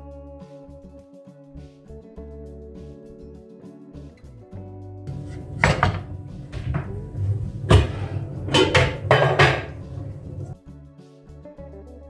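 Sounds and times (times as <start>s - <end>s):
pan knocking on metal grates: 5.1s - 10.6s
pan scraping: 5.1s - 10.6s.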